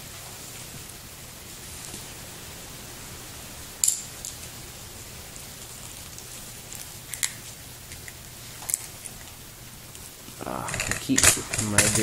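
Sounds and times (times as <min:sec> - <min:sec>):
steady hiss: 0:00.0 - 0:12.0
thin metal clicking and crackling: 0:03.8 - 0:04.6, 0:05.4 - 0:12.0.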